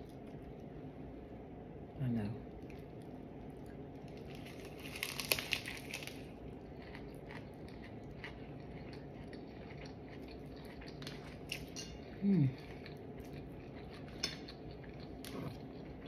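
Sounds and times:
person chewing: 0:02.6 - 0:16.0
crunching bite of sandwich: 0:04.1 - 0:11.0.

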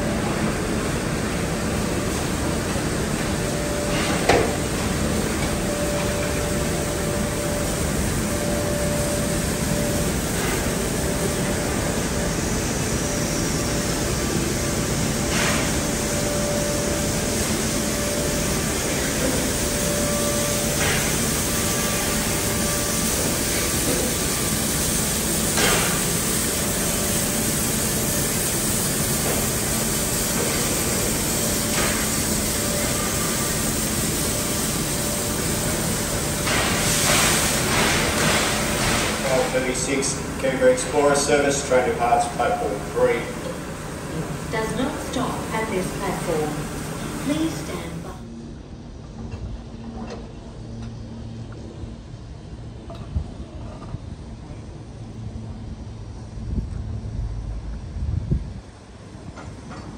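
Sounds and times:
steady steam hiss: 0:00.0 - 0:48.2
short sharp steam hisses: 0:36.0 - 0:39.6
constant hum: 0:37.5 - 0:59.9.

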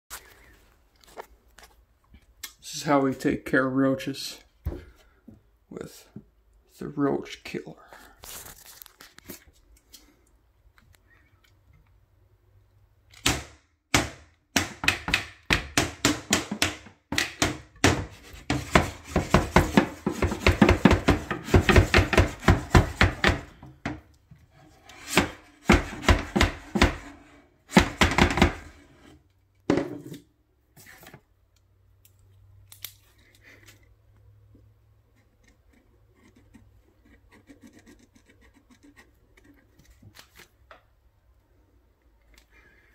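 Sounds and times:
wooden paddle smacking a shelf: 0:13.2 - 0:24.0, 0:25.0 - 0:28.8.

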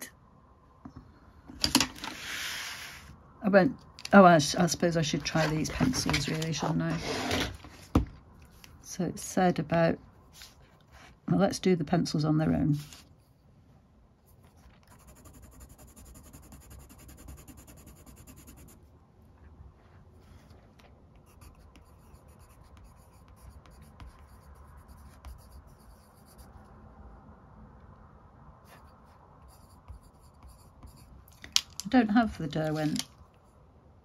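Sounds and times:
pencil scratching on paper: 0:14.6 - 0:18.8, 0:21.1 - 0:26.6, 0:28.6 - 0:31.3.

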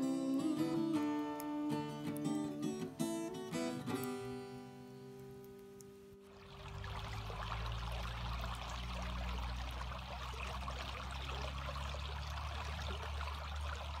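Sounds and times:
stream rushing over rocks: 0:06.3 - 0:14.0.

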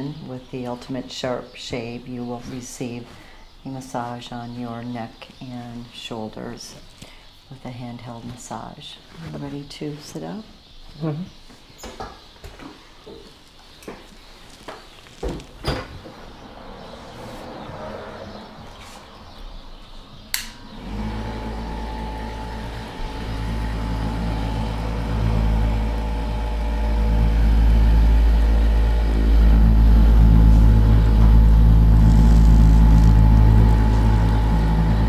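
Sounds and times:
massager switch click: 0:20.3 - 0:20.6
massager motor humming: 0:20.6 - 0:35.0.

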